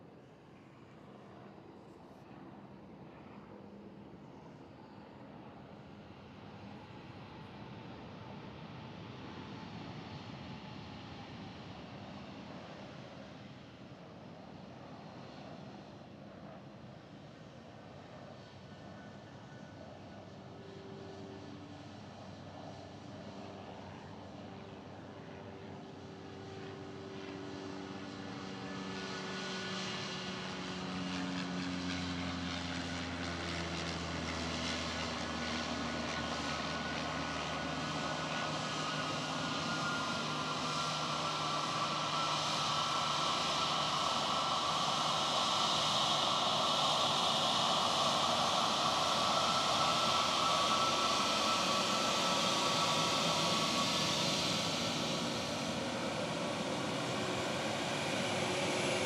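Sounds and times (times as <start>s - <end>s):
jetliner engine noise: 0.0s - 59.0s
high engine whine: 18.0s - 59.0s.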